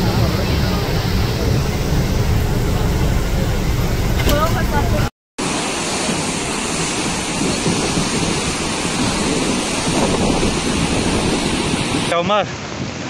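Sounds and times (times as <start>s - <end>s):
flooded river rushing: 0.0s - 13.0s.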